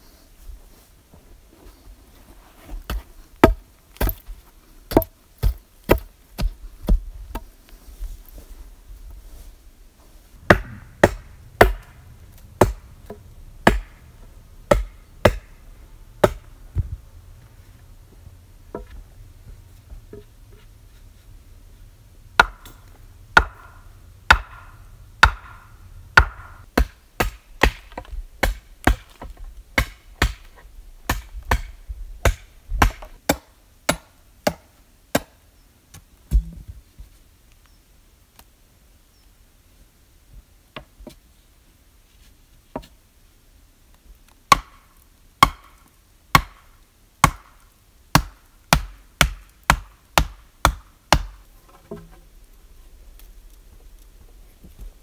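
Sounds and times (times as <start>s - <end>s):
axe chopping wood: 2.9s - 4.2s, 4.9s - 7.5s, 10.4s - 14.0s, 14.6s - 15.6s, 16.2s - 16.5s, 22.4s - 30.5s, 31.1s - 35.4s, 44.5s - 44.8s, 45.4s - 46.6s, 47.2s - 52.1s.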